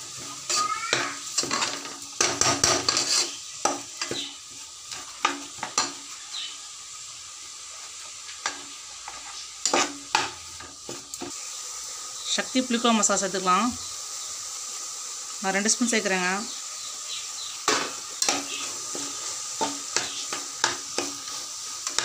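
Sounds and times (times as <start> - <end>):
faint sizzle: 0.0 - 22.0
spoon scraping and knocking pot: 0.5 - 4.3, 8.4 - 11.0.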